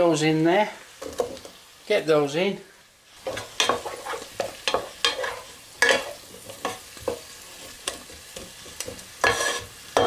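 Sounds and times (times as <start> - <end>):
food sizzling in a pan: 0.0 - 10.0
wooden spoon scraping a pan: 3.2 - 10.0.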